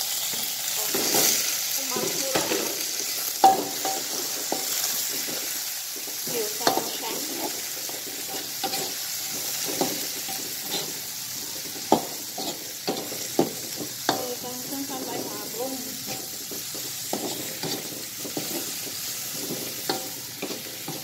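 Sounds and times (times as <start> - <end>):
aromatics sizzling in hot oil: 0.0 - 21.0
metal spatula scraping a wok: 0.7 - 21.0.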